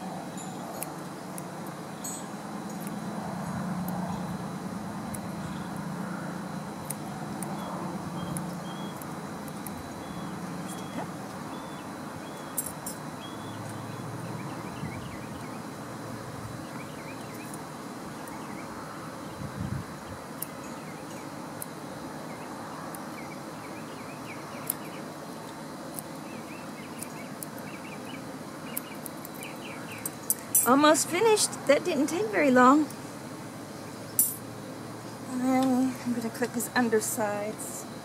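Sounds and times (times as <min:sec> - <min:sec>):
outdoor background noise: 0:00.0 - 0:38.0
small birds chirping: 0:00.0 - 0:38.0
grooming scissors snipping: 0:06.8 - 0:09.8.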